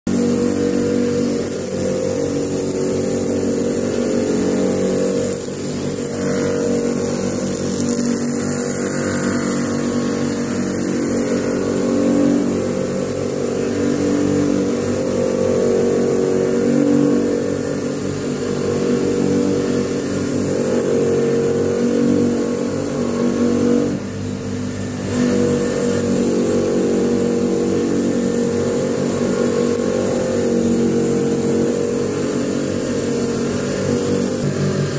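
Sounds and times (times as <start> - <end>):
bench grinder motor humming: 0.1 - 34.9
blade against polishing drum: 0.1 - 34.9.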